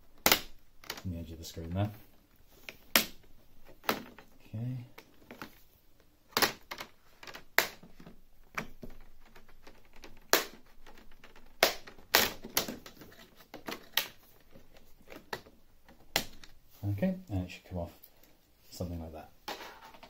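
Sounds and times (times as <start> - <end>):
plastic clips snapping: 0.2 - 1.1, 6.3 - 16.6.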